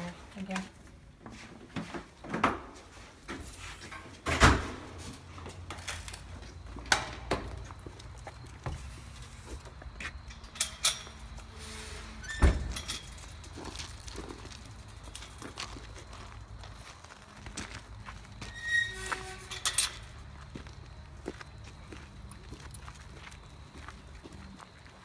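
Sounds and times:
footsteps: 4.9s - 25.0s
metal gate clanking: 10.3s - 13.3s, 18.5s - 20.2s.

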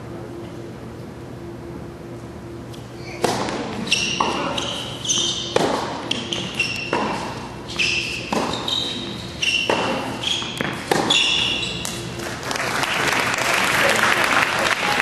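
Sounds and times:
shoes squeaking on court: 2.7s - 12.2s
tennis racket hitting ball: 3.1s - 12.2s.

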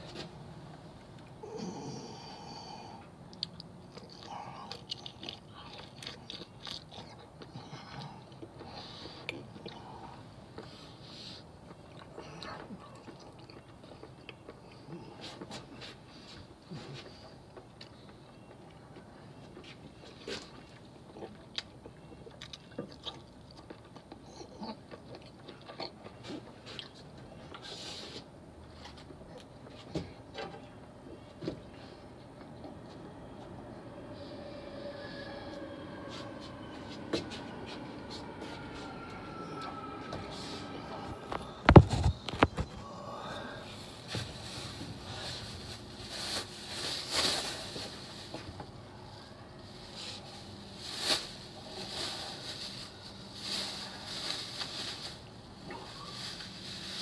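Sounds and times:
soft rustling: 49.6s - 57.0s.

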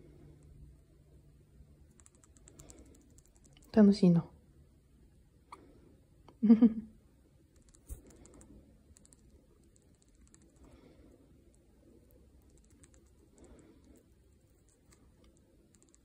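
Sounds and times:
woman's voice: 3.7s - 4.3s.

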